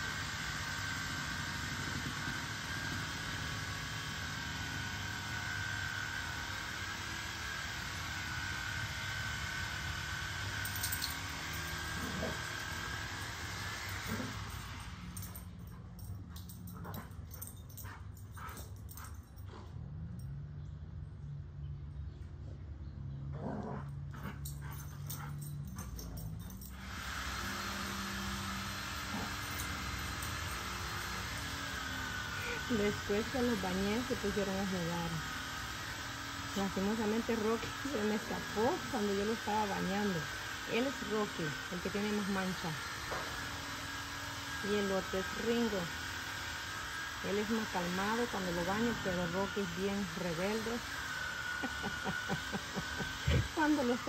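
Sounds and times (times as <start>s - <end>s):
dogs growling and yipping: 11.8s - 12.8s, 23.2s - 26.6s, 28.9s - 31.5s, 51.5s - 53.6s.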